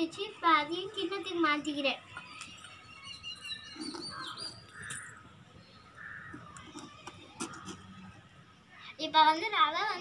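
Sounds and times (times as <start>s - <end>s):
birds chirping: 0.6s - 9.0s
spoon scraping clay pot: 3.7s - 4.6s.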